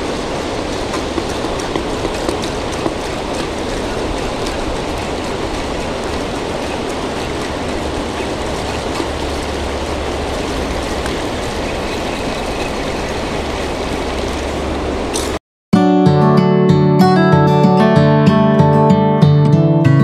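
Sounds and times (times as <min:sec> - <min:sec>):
water pouring off a dam: 0:00.0 - 0:15.4.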